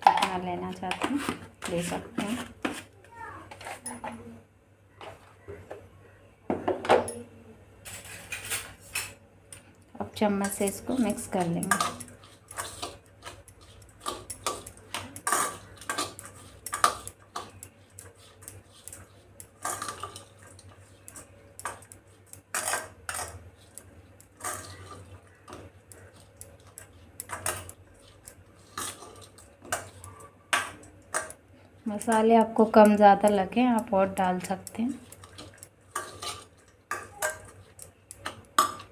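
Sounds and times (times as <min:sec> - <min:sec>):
spoon scraping metal bowl: 0:10.3 - 0:38.9.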